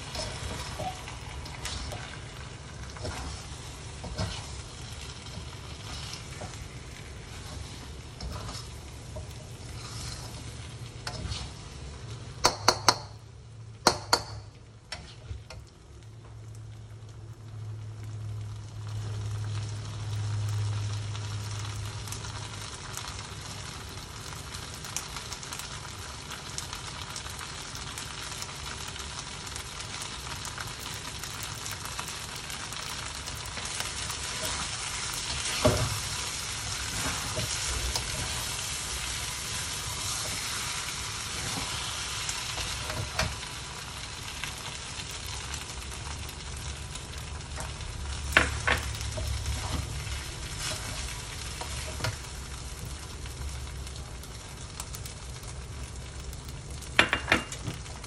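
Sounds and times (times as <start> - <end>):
metal spatula scraping a wok: 0.0 - 11.9, 33.6 - 43.4, 49.1 - 52.2
noodles sizzling in a wok: 0.0 - 58.0.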